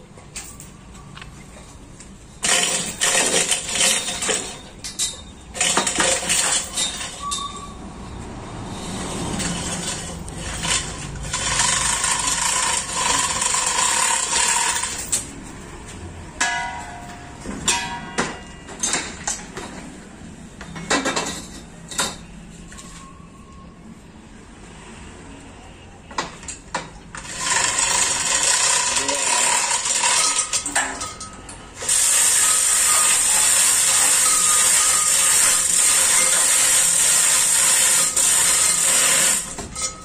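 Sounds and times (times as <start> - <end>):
hoist chains rattling: 2.4 - 7.8, 9.3 - 15.4, 27.1 - 40.0
metal squeaks: 2.4 - 15.2
thin ringing tone: 6.6 - 8.2, 22.7 - 24.0, 29.6 - 36.4.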